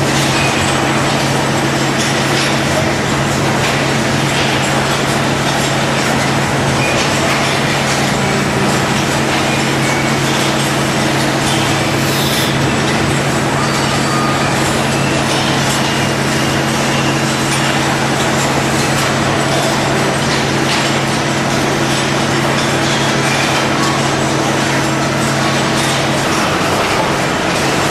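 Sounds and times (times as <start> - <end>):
machinery hum: 0.0 - 27.9
even hiss: 11.9 - 12.6.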